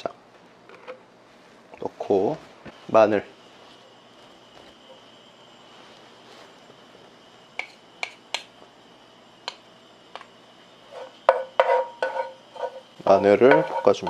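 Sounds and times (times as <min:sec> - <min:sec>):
garlic frying in oil: 0:02.0 - 0:14.0
utensils tapping dish: 0:10.9 - 0:14.0
wooden spatula stirring in pan: 0:10.9 - 0:14.0.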